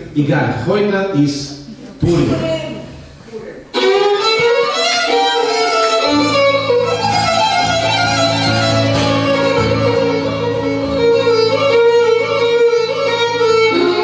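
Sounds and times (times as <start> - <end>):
acoustic guitar accompaniment: 1.6 - 14.0
violin folk melody: 3.7 - 14.0.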